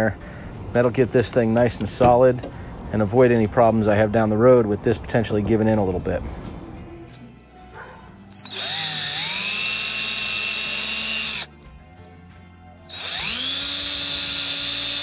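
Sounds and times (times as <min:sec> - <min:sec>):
cordless drill whining: 0:08.4 - 0:11.5, 0:12.8 - 0:15.0.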